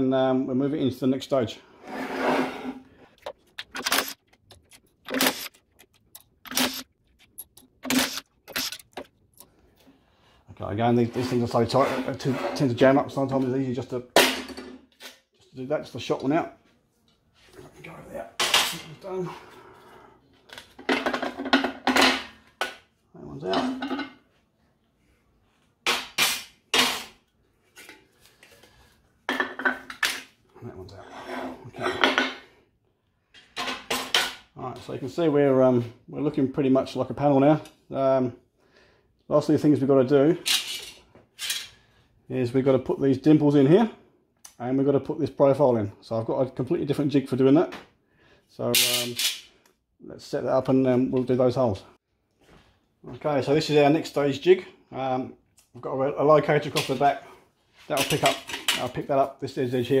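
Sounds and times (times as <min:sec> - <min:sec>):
cordless power driver spinning nuts: 0:03.2 - 0:09.1
metal clinks and clatter: 0:03.2 - 0:09.5.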